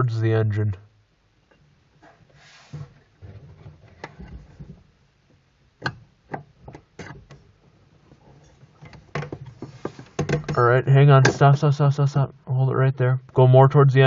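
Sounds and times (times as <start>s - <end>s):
sharp clicks and knocks: 5.8s - 7.5s, 8.8s - 10.6s.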